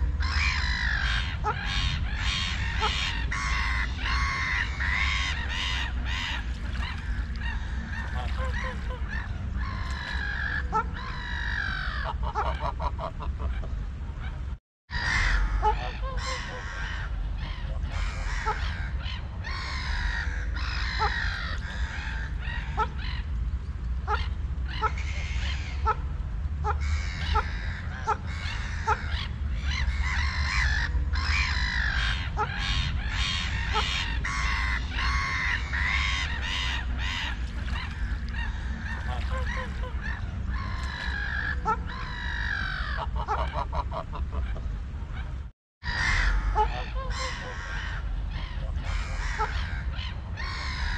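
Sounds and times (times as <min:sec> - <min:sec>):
low steady rumble: 0:00.0 - 0:50.9
waterfowl honking: 0:00.2 - 0:13.7, 0:14.9 - 0:23.3, 0:24.0 - 0:44.7, 0:45.8 - 0:50.9.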